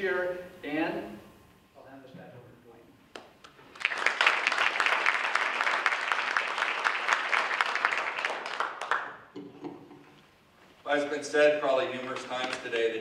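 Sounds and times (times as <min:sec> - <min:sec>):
audience applauding: 0:03.6 - 0:09.3.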